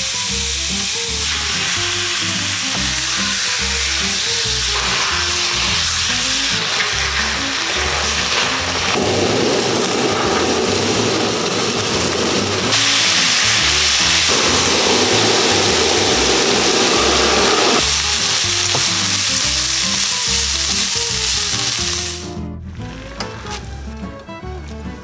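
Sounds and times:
pork sizzling in a wok: 0:00.0 - 0:24.0
background music: 0:00.0 - 0:25.0
blowtorch flame rushing: 0:02.2 - 0:18.0.

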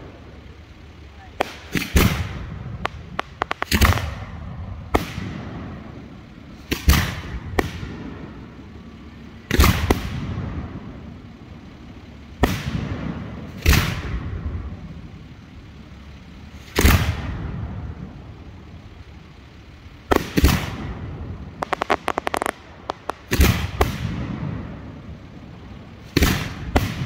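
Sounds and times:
firework bangs echoing: 0:01.4 - 0:08.4, 0:09.5 - 0:11.0, 0:12.4 - 0:14.8, 0:16.7 - 0:17.8, 0:20.1 - 0:25.1, 0:26.0 - 0:27.0
firework shells launching: 0:01.4 - 0:08.4, 0:09.5 - 0:10.8, 0:12.4 - 0:14.3, 0:16.6 - 0:17.5, 0:20.1 - 0:25.0, 0:26.0 - 0:27.0.

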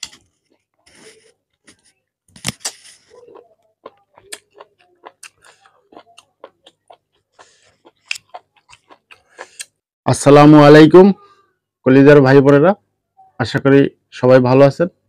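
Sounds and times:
fingers squelching rice: 0:02.6 - 0:09.8
wet chewing smacks: 0:02.6 - 0:09.8.

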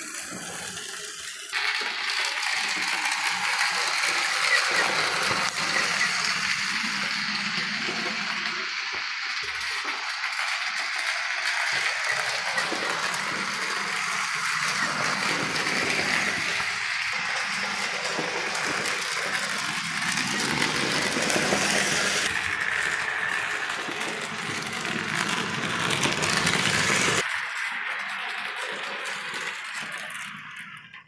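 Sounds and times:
model train whirring on rails: 0:00.0 - 0:31.0.

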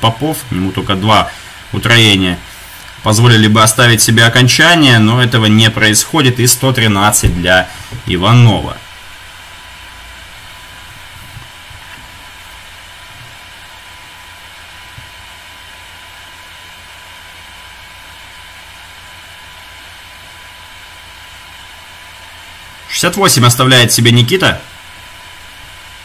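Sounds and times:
low electrical hum: 0:00.0 - 0:26.0
steady hiss: 0:00.0 - 0:26.0.

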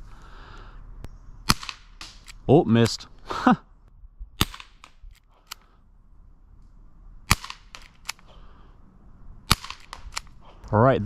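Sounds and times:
airsoft revolver shots: 0:01.5 - 0:02.4, 0:04.4 - 0:05.0, 0:07.3 - 0:08.3, 0:09.5 - 0:10.4.

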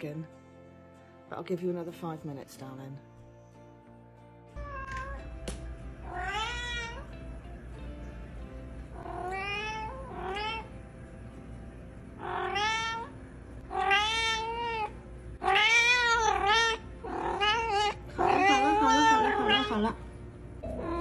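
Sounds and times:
cat meowing: 0:04.6 - 0:05.3, 0:06.0 - 0:07.2, 0:09.0 - 0:10.7, 0:12.2 - 0:20.0, 0:20.6 - 0:21.0.

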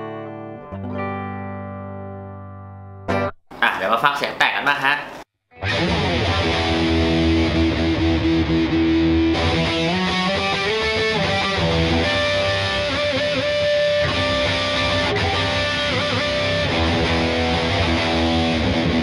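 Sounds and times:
distorted electric guitar: 0:05.6 - 0:19.0.

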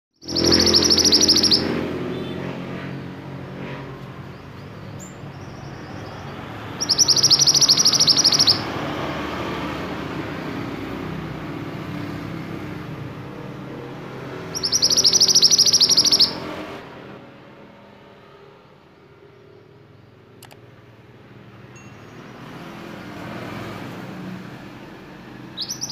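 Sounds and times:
bird singing high trills: 0:00.2 - 0:02.4, 0:04.1 - 0:09.0, 0:14.0 - 0:16.7, 0:25.4 - 0:25.9.

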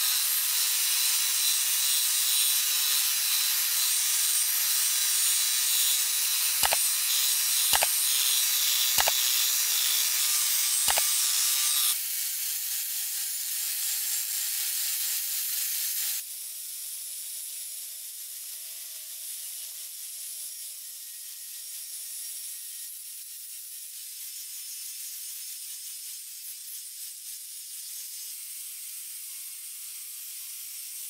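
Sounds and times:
angle grinder grinding metal: 0:00.0 - 0:16.2
sharp ticks: 0:07.7 - 0:08.0, 0:10.9 - 0:11.1.

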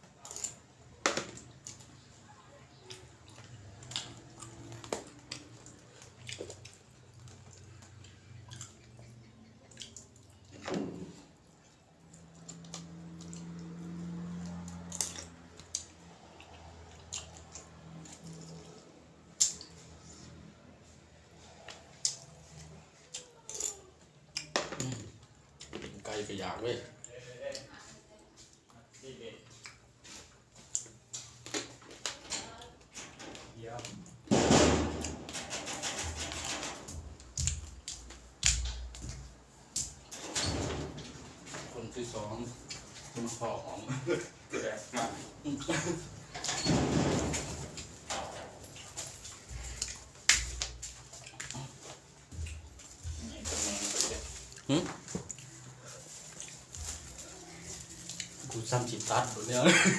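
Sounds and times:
soft chewing: 0:00.0 - 0:26.0, 0:26.9 - 0:33.0, 0:48.5 - 0:58.7.

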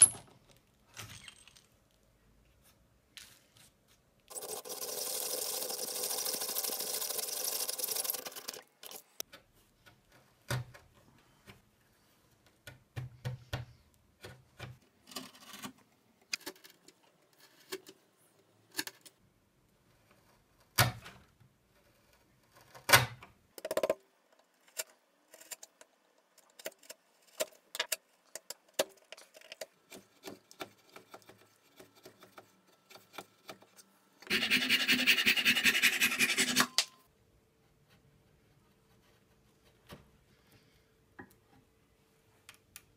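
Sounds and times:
handsaw cutting wood: 0:34.3 - 0:36.8.

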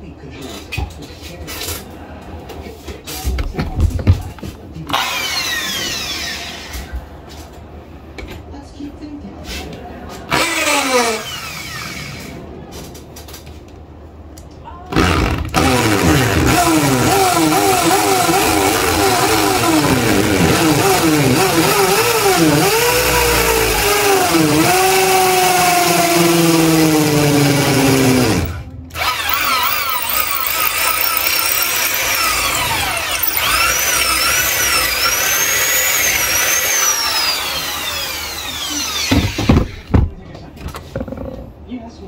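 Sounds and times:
electric drill boring into wall: 0:04.9 - 0:06.8, 0:10.3 - 0:12.3, 0:14.9 - 0:40.1.

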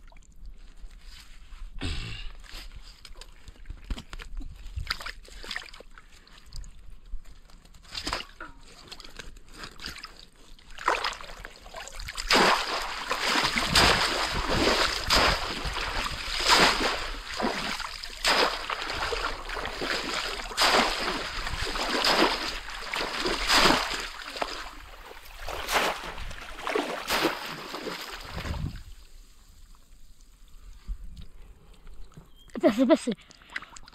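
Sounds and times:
pond water splashing: 0:07.9 - 0:29.6.

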